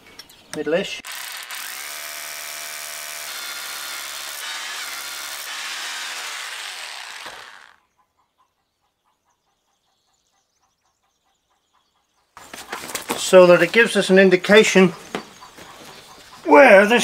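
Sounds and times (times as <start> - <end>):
power drill boring into stone: 1.0 - 7.8.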